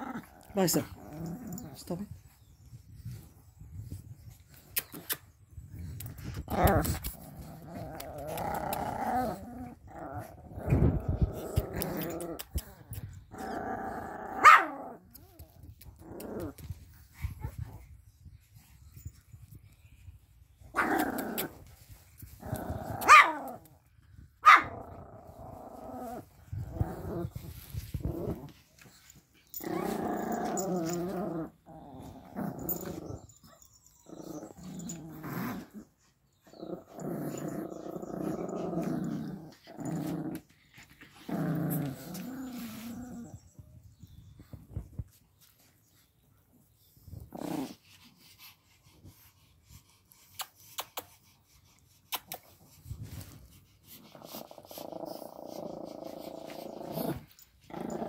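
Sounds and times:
dogs growling in play: 0:00.0 - 0:18.0, 0:20.5 - 0:58.0.

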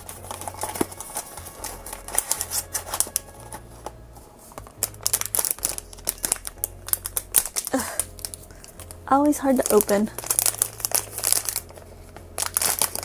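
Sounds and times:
plastic bag crinkling: 0:00.0 - 0:03.6, 0:04.7 - 0:13.0.

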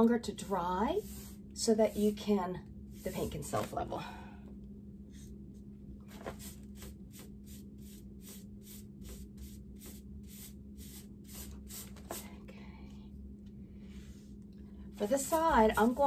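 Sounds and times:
steady low hum: 0:00.0 - 0:16.0
paintbrush swishing: 0:01.0 - 0:02.2, 0:06.3 - 0:12.3.

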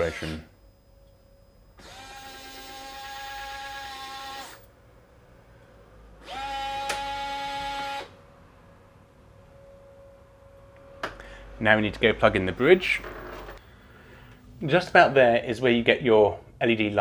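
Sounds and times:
lock motor whine: 0:01.0 - 0:04.8, 0:06.2 - 0:08.2, 0:12.9 - 0:13.6.

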